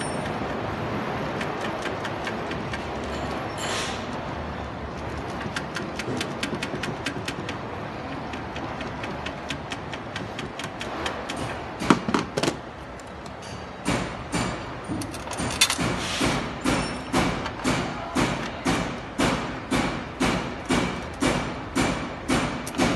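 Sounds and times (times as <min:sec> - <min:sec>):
small rapid clicks: 0:01.2 - 0:03.0, 0:05.0 - 0:11.4
sharp knocks: 0:08.2 - 0:12.6, 0:13.8 - 0:22.9.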